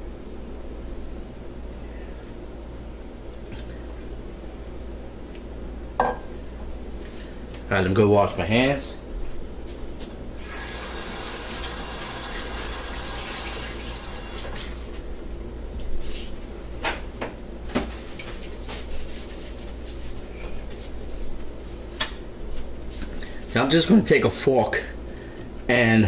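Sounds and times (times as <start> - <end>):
water running from a tap: 10.4 - 14.8.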